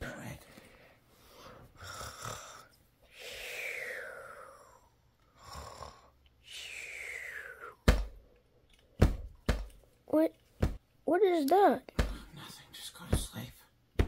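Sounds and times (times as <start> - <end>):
person imitating snoring: 1.8 - 7.8.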